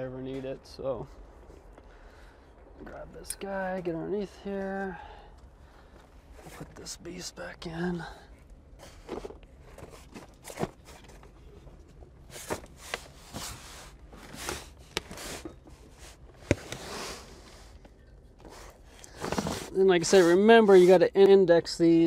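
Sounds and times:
rustling on cardboard: 18.4s - 21.0s.

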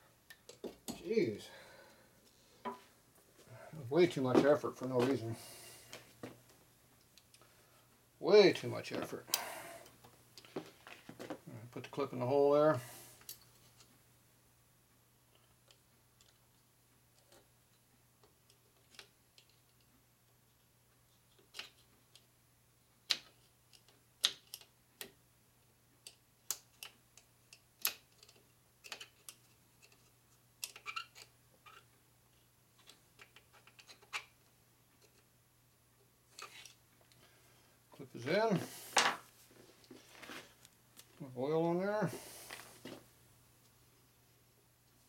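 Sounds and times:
faint steady hum: 0.0s - 45.0s
small metal clicks and ticks: 15.3s - 16.5s, 26.0s - 31.9s.

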